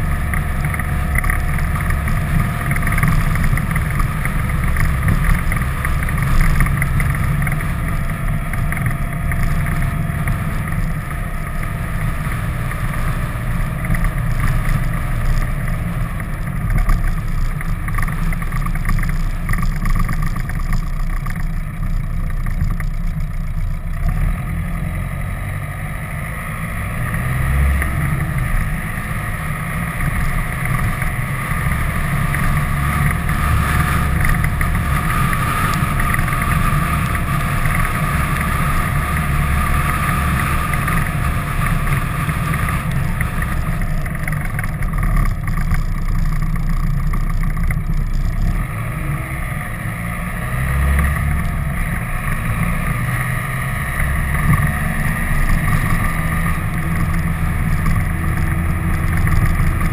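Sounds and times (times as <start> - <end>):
vehicle engine and road noise: 0.0 - 59.9.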